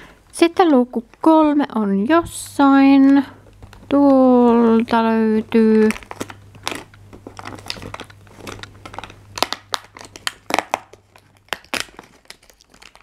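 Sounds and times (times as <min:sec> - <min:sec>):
cardboard tearing and crinkling: 0:05.6 - 0:13.0.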